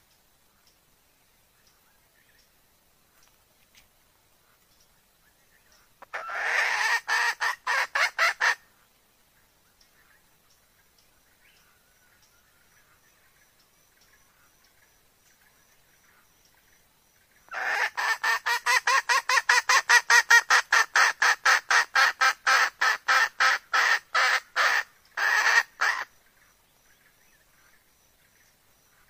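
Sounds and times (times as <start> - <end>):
hen clucking: 6.0 - 8.6, 17.5 - 26.1.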